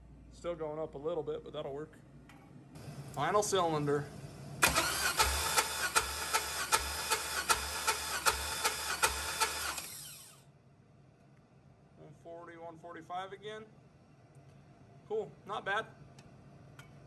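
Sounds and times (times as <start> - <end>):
starter cranking engine: 4.6 - 10.4.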